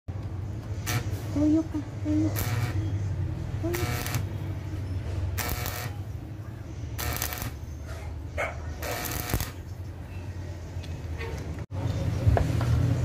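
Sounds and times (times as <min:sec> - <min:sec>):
steady low hum: 0:00.1 - 0:10.8
welding arc crackling: 0:00.8 - 0:01.2, 0:02.3 - 0:02.8, 0:03.6 - 0:04.4, 0:05.3 - 0:06.1, 0:07.0 - 0:07.7, 0:08.8 - 0:09.7.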